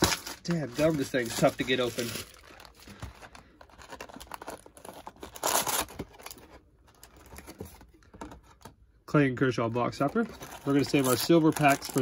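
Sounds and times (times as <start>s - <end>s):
packaging tearing: 0.0s - 2.8s, 3.7s - 6.4s, 10.3s - 12.0s.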